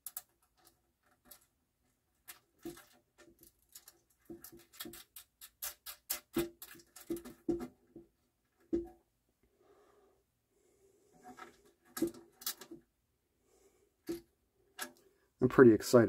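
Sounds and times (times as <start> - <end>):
small clicks of screw and nut: 0.0 - 1.5, 2.1 - 7.4, 11.4 - 12.8, 14.0 - 15.1.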